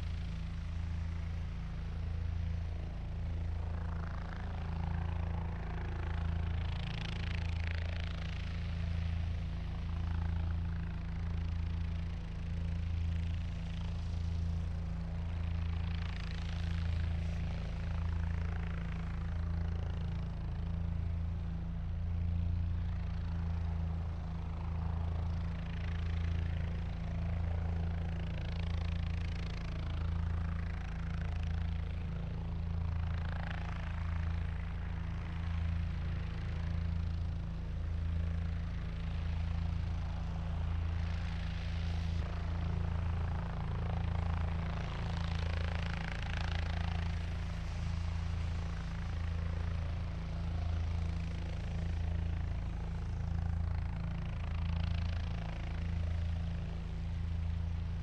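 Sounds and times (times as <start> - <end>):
helicopter rotor beat: 0.0 - 58.0.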